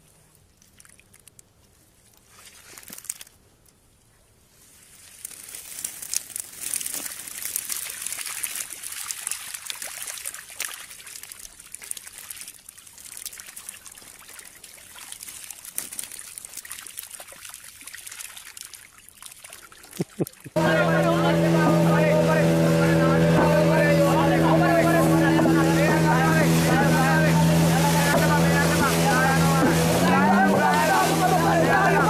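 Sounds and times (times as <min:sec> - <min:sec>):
fish flapping on wet mud: 0:02.4 - 0:03.4, 0:05.0 - 0:20.6
water trickling: 0:05.1 - 0:20.6.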